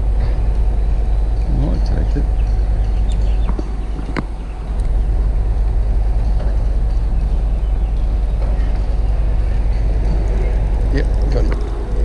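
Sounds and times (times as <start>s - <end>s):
wind buffeting microphone: 0.0s - 12.0s
fishing reel clicks: 10.2s - 12.0s.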